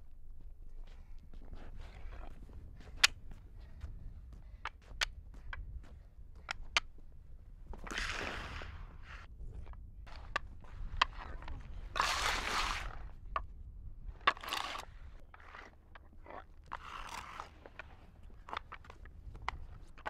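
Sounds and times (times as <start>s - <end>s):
boards scraping on road: 7.8s - 9.3s, 10.1s - 13.1s, 14.2s - 18.9s.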